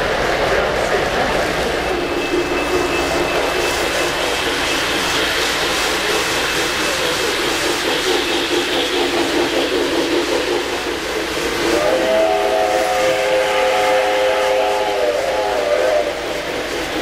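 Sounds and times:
model train motors whirring: 0.0s - 17.0s.

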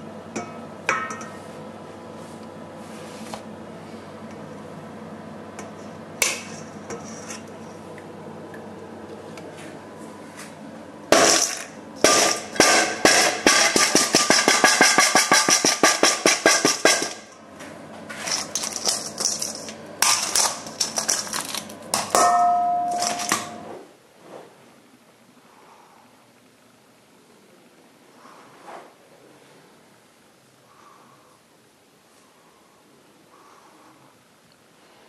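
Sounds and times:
metal bowl clanging: 0.4s - 1.4s, 11.2s - 17.4s, 18.2s - 23.7s
caramel cracking against metal bowl: 18.4s - 22.3s.

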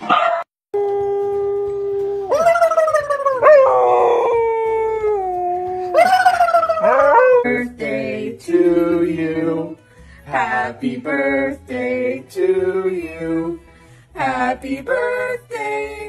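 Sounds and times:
dog howling: 0.8s - 7.6s
person singing: 3.5s - 16.0s.

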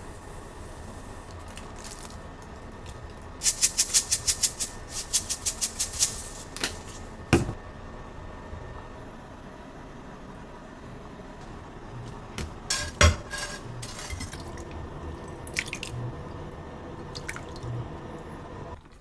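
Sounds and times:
seeds rattling in plastic shaker: 3.4s - 7.0s.

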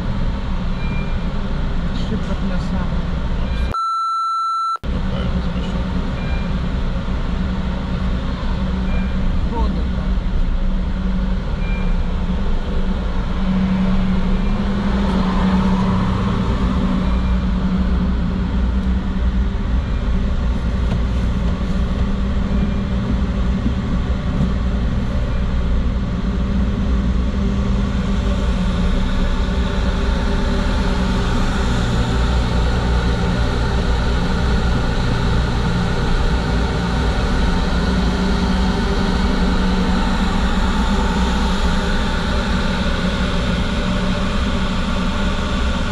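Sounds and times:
low engine drone: 4.8s - 45.9s.

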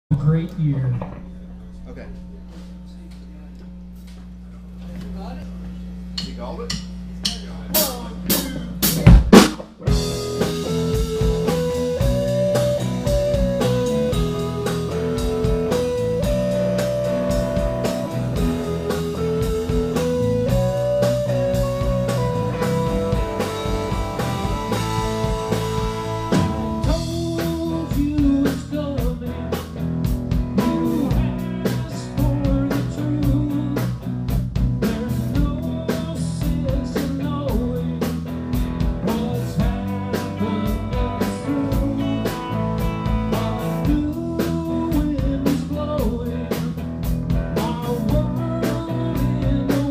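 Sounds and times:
live rock band playing: 6.2s - 49.9s
loud drum hits: 6.8s - 11.4s
lead guitar melody: 9.8s - 34.4s.

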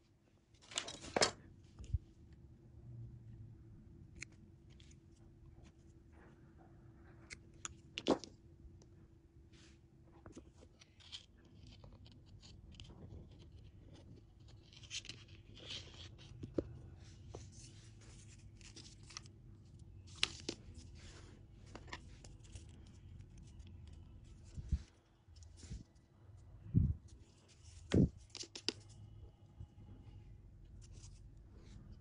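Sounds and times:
faint steady hum: 0.0s - 32.0s
soft scraping and rustling: 9.5s - 19.3s, 20.0s - 32.0s.

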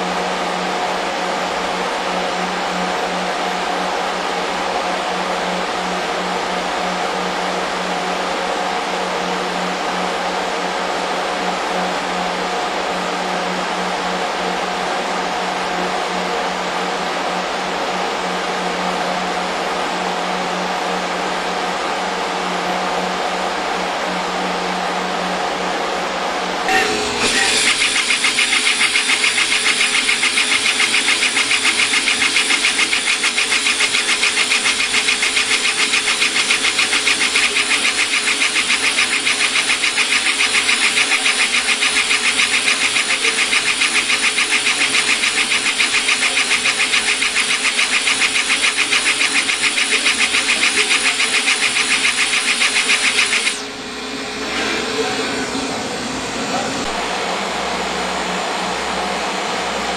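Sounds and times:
steady fan noise: 0.0s - 59.9s
laser engraver hissing and pulsing: 26.7s - 53.7s.

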